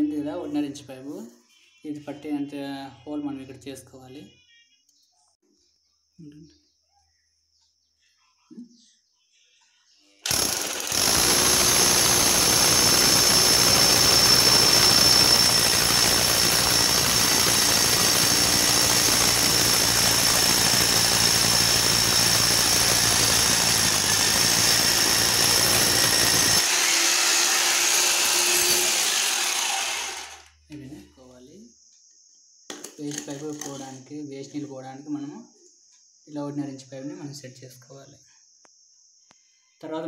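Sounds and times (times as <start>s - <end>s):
drill motor noise: 10.2s - 30.5s
hammer drill pounding wall: 10.2s - 30.5s.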